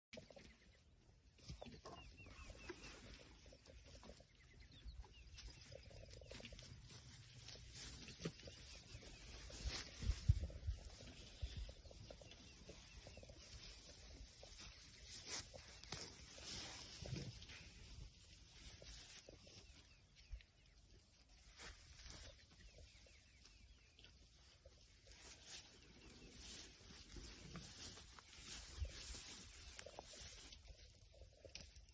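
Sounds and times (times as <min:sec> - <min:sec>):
faint bird chirps: 0:00.2 - 0:17.8
wind rustle: 0:05.3 - 0:20.0, 0:24.4 - 0:31.9.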